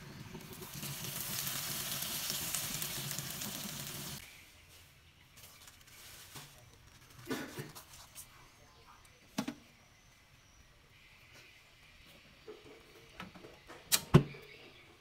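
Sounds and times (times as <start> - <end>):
caramel bubbling in a wok: 0.0 - 4.3.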